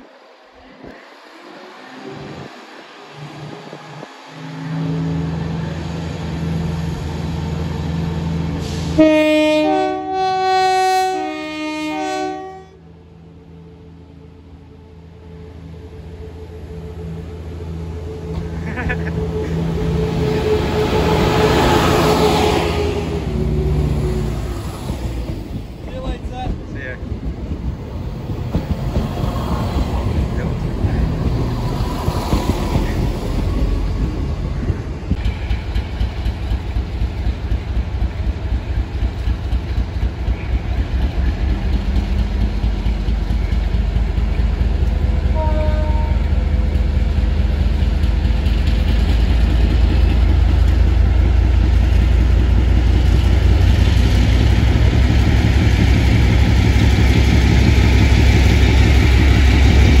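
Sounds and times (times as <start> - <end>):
diesel locomotive engine rumble: 0.0 - 60.0
train wheels clattering over rails: 24.8 - 45.4.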